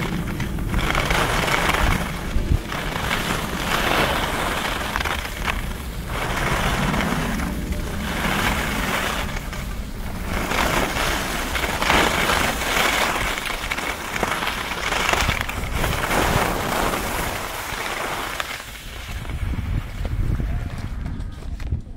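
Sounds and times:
skis scraping over snow: 0:00.0 - 0:21.6.

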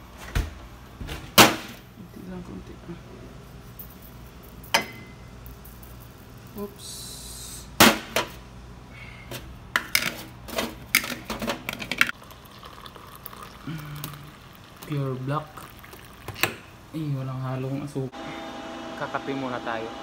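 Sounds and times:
coffee granules pouring: 0:12.1 - 0:16.3.

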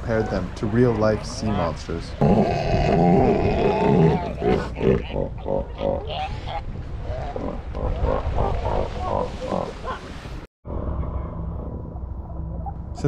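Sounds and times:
elephant seals calling: 0:01.1 - 0:10.2.

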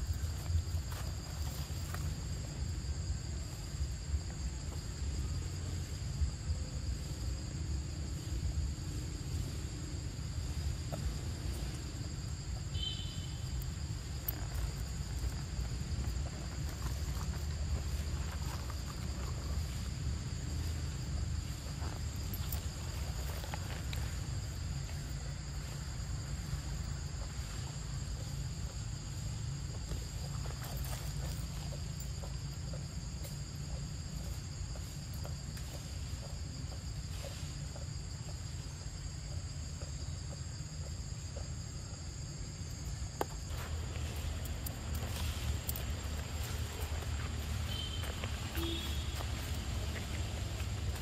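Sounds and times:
insects droning: 0:00.0 - 0:51.0
dry leaves rustling: 0:43.5 - 0:51.0.

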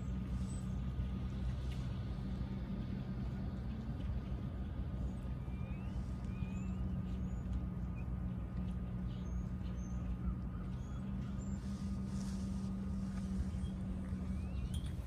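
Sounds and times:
low mechanical hum: 0:00.0 - 0:15.0
bird chirps: 0:05.4 - 0:08.1, 0:13.4 - 0:15.0.

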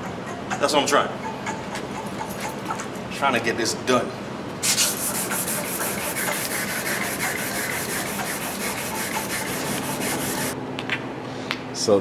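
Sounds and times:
sandpaper rubbing on metal: 0:04.6 - 0:10.6.

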